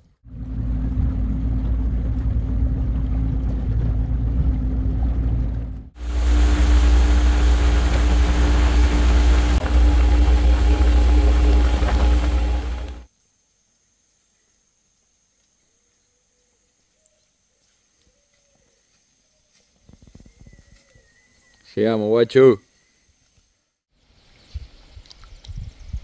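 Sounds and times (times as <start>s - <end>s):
outboard motor running: 0.2s - 13.1s
water rushing: 0.3s - 13.1s.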